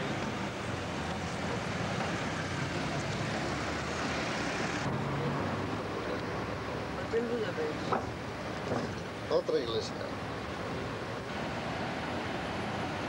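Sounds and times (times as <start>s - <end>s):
road noise: 0.0s - 13.0s
engine hum: 10.0s - 13.0s.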